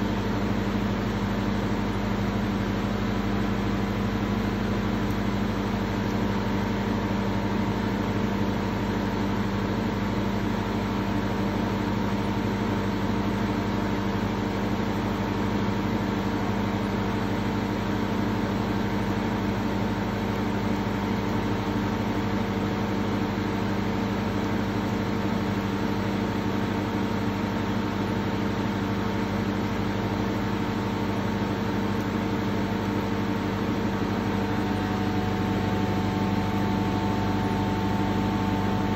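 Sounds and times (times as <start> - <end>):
machine humming: 20.0 - 38.9.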